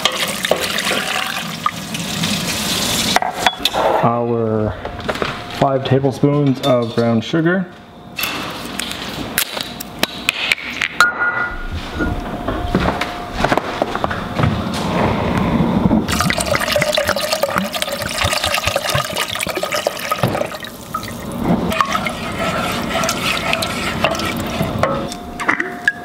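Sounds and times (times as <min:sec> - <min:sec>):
wine pouring into saucepan: 0:00.1 - 0:03.1, 0:16.1 - 0:24.9
wooden spoon stirring and scraping: 0:21.4 - 0:25.2.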